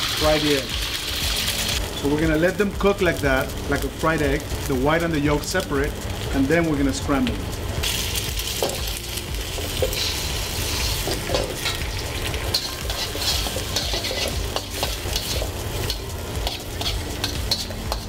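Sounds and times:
eggs sizzling in hot oil: 0.0 - 18.0
metal spatula scraping and tapping wok: 9.7 - 11.9, 12.5 - 18.0.

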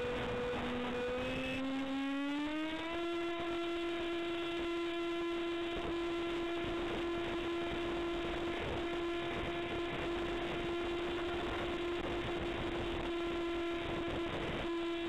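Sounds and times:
electric motor whine: 0.0 - 15.0
wind noise: 8.3 - 13.1.

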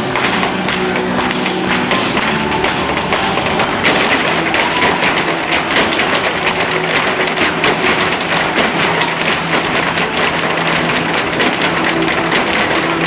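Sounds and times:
faint instrumental music: 0.0 - 13.0
hard shoes tapping on a stage: 0.0 - 13.0.

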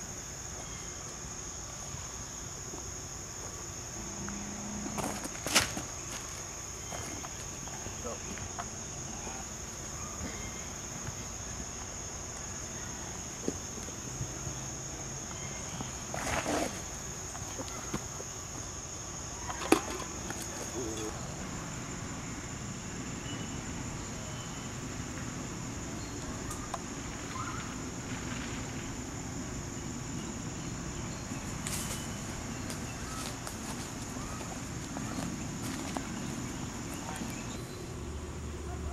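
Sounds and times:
insect chorus: 0.0 - 38.9.

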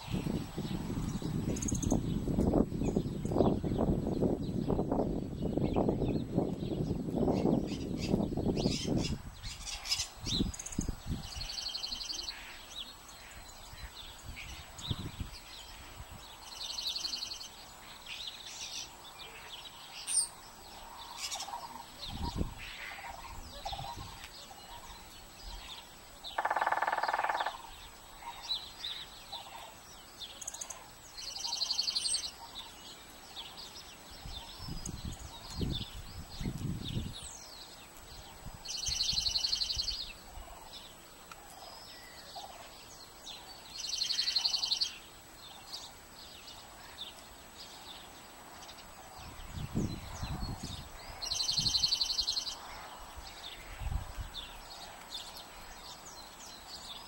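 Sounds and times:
lower-pitched bird call: 21.1 - 29.8.

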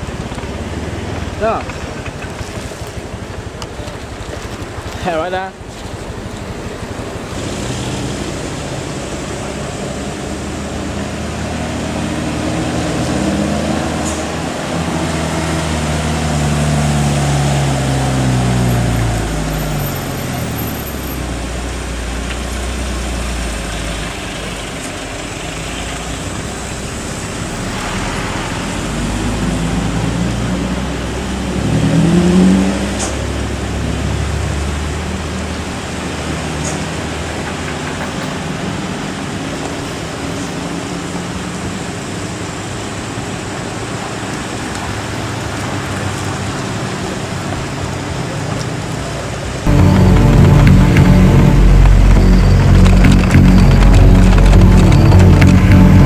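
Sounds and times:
truck and car engines rumbling: 0.0 - 56.0
engine revving sharply: 49.7 - 56.0.

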